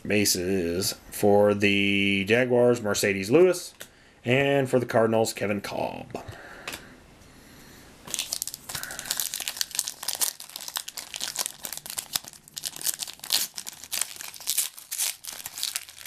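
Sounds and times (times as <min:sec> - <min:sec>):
foil wrapper crinkling and tearing: 0:08.1 - 0:16.0.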